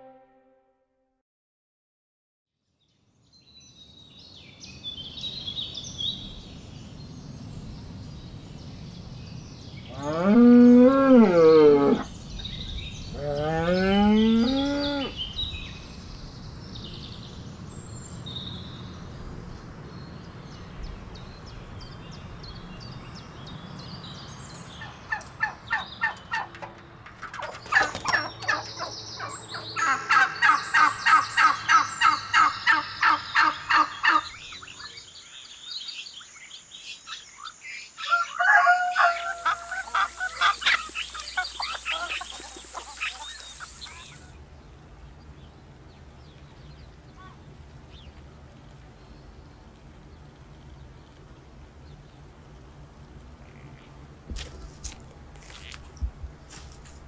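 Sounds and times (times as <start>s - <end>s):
domestic fowl calling: 27.3s - 34.6s, 38.0s - 44.2s.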